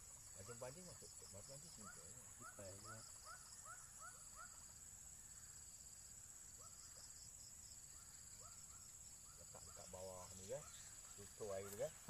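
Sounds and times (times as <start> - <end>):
high-pitched insect chorus: 0.0 - 12.0
small animal chirping: 1.6 - 4.8.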